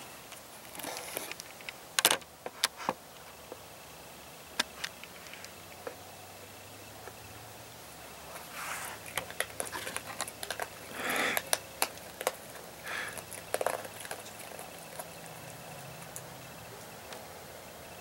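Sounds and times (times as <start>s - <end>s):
animal crunching food: 8.3s - 18.0s.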